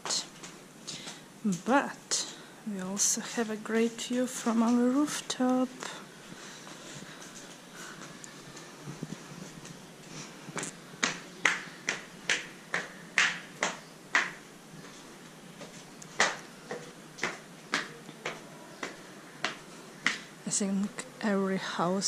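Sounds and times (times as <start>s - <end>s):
footsteps on concrete stairs: 6.3s - 20.3s.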